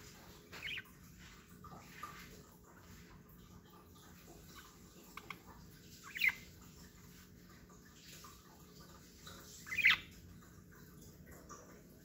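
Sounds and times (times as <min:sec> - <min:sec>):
budgerigar chirps: 0:00.6 - 0:00.9, 0:06.1 - 0:06.4, 0:09.7 - 0:10.1.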